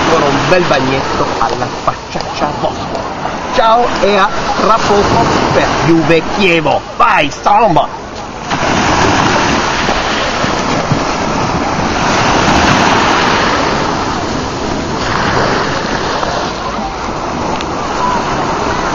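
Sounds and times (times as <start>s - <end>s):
surf washing: 0.0s - 18.9s
swimmer diving splash: 8.4s - 18.9s.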